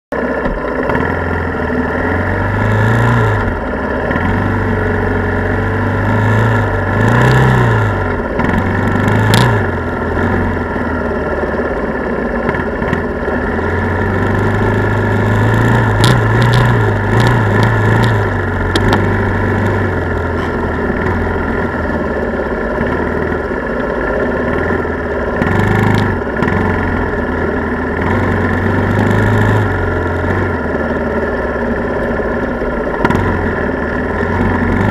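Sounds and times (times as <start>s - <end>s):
atv engine running: 0.1s - 34.9s.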